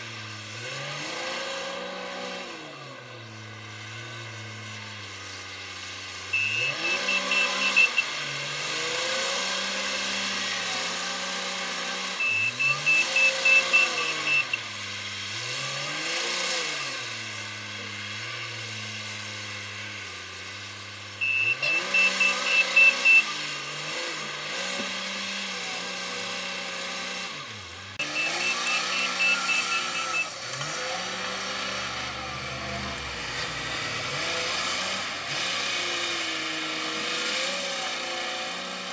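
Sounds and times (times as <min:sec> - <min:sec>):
diesel engine revving: 0:00.0 - 0:38.9
reverse alarm high beeps: 0:06.4 - 0:08.1, 0:12.2 - 0:14.6, 0:21.2 - 0:23.4, 0:28.0 - 0:30.4.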